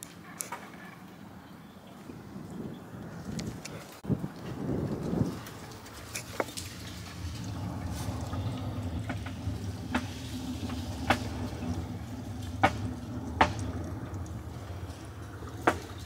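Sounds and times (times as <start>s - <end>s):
steady low hum: 4.0s - 16.0s
water dripping: 4.3s - 16.0s.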